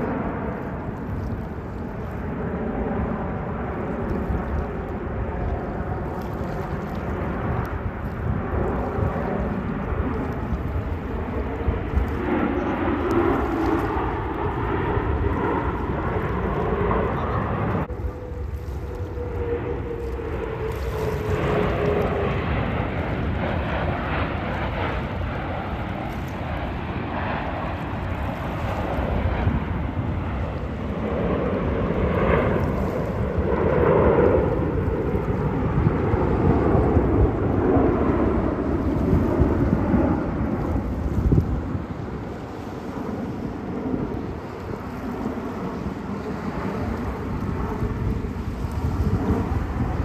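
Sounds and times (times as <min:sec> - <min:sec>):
airplane engine noise: 0:00.0 - 0:50.0.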